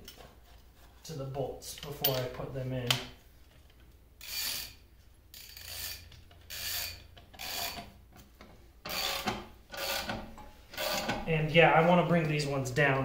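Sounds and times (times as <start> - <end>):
wrench rasping on metal bolt: 4.2 - 4.8, 5.4 - 7.9, 10.8 - 11.2.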